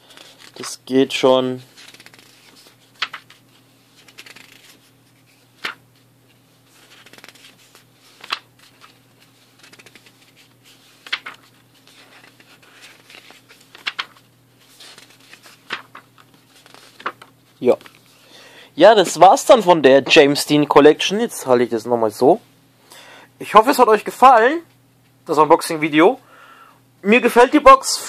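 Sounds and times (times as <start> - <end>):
paper page flips: 0.0 - 0.8, 1.6 - 18.2
soft paper rustling: 0.0 - 18.2.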